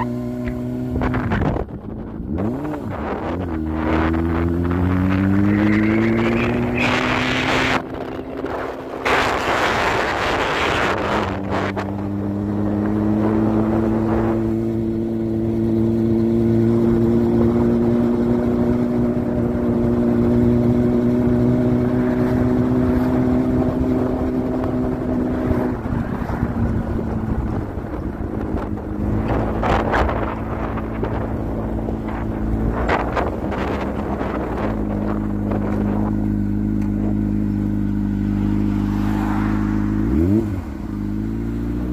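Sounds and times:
motorcycle engine cruising: 0:00.0 - 0:41.9
wind buffeting microphone: 0:00.5 - 0:05.5, 0:06.1 - 0:37.4.

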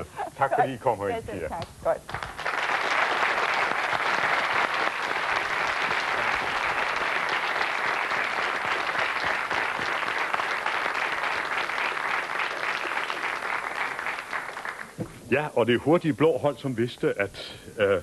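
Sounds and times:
audience applauding: 0:02.2 - 0:15.0.

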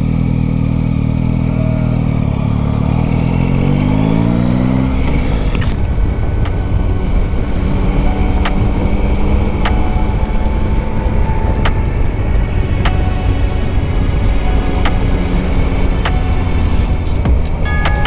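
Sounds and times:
motorcycle engine accelerating: 0:00.0 - 0:18.0
wind noise: 0:03.0 - 0:18.0
light regular ticks: 0:05.4 - 0:18.0.

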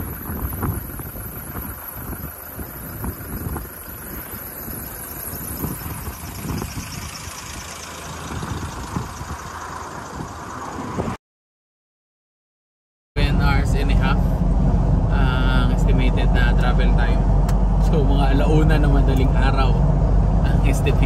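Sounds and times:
road traffic noise: 0:00.0 - 0:11.2, 0:13.2 - 0:21.0
wind buffeting microphone: 0:00.0 - 0:11.2.

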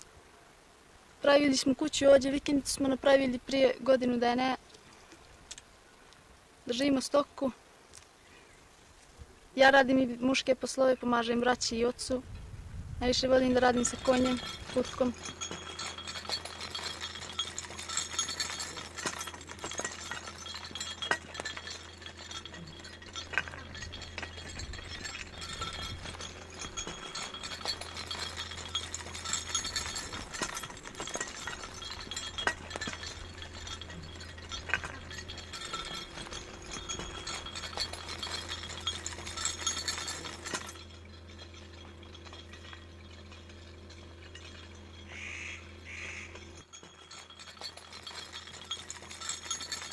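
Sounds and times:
steady low hum: 0:11.6 - 0:49.9
hooves clacking on stones: 0:13.4 - 0:49.9.

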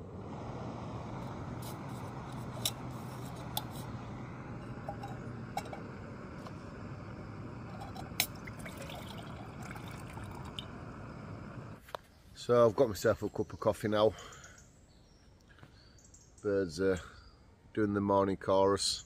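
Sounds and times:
gas stove hissing: 0:00.0 - 0:11.8
steel mug clinking: 0:04.5 - 0:06.1, 0:07.6 - 0:10.9
water pouring into mug: 0:07.6 - 0:11.0.

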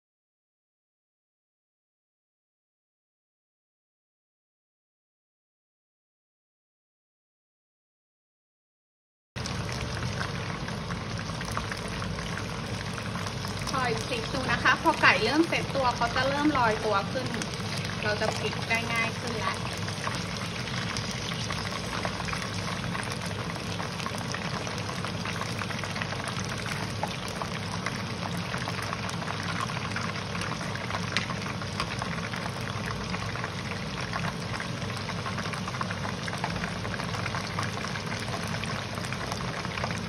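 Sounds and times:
chicken frying in hot oil: 0:09.4 - 0:40.0.

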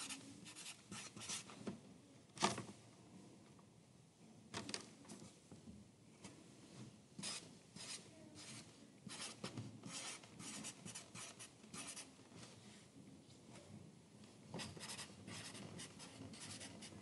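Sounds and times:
pencil scratching on paper: 0:00.0 - 0:01.5, 0:07.2 - 0:12.1, 0:14.6 - 0:17.0.

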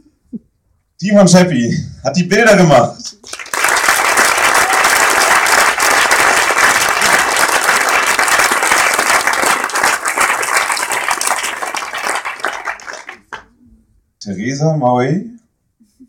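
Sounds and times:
audience applauding: 0:03.1 - 0:13.5.

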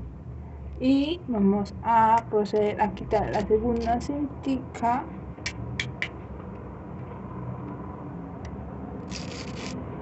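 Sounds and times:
scraping rustle of tape: 0:09.1 - 0:09.8.

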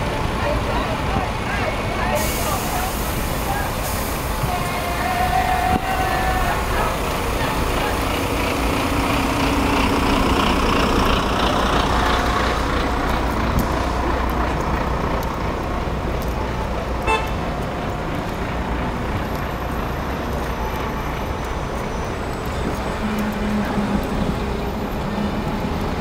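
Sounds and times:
urban traffic noise: 0:00.0 - 0:26.0
car horn toot: 0:17.0 - 0:17.4.

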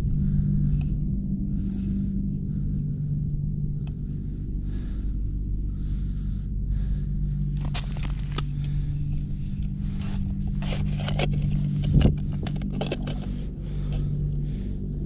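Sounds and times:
steady low hum: 0:00.0 - 0:15.0
hands handling plastic gear: 0:07.5 - 0:14.0.

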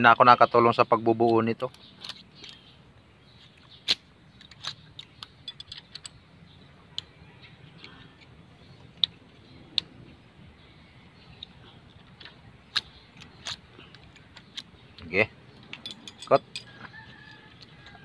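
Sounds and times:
metallic clicks of hand tools: 0:03.9 - 0:06.2, 0:15.6 - 0:17.7.

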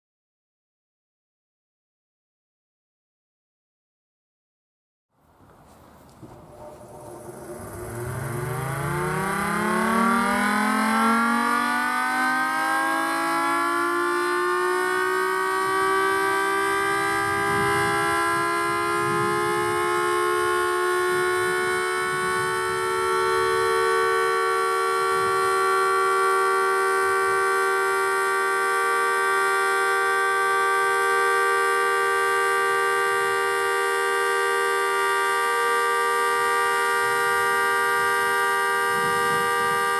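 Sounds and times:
warning siren winding up: 0:06.2 - 0:39.9.

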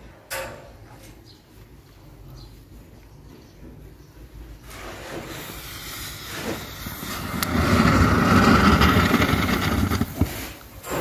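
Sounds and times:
thermite charge fizzing and crackling: 0:05.2 - 0:11.0.

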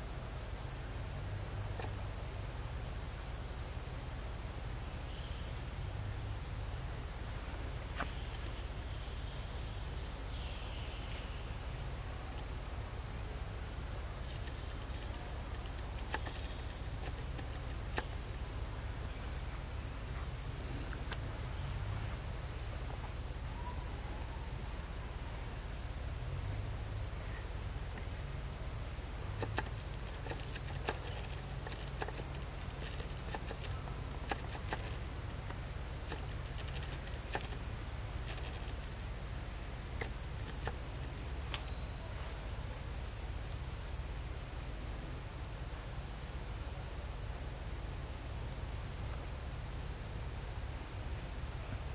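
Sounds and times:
insect chirping: 0:00.0 - 0:51.9
faint clicks: 0:41.4 - 0:41.7.

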